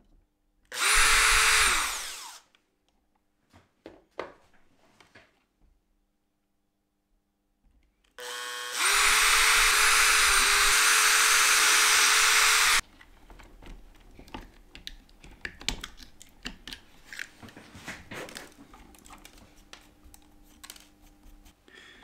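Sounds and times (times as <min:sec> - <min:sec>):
electric drill boring into metal: 0:00.7 - 0:02.5, 0:08.2 - 0:12.8.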